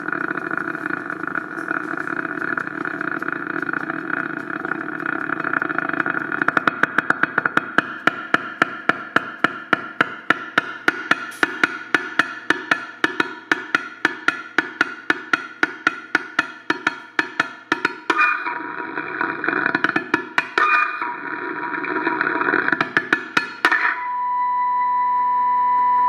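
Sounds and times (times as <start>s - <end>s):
buzzing feedback tone: 0.0s - 7.2s, 23.4s - 26.0s
rapid clicking taps: 0.2s - 18.4s, 19.5s - 20.8s, 22.4s - 23.8s
ringing feedback tone: 23.4s - 26.0s.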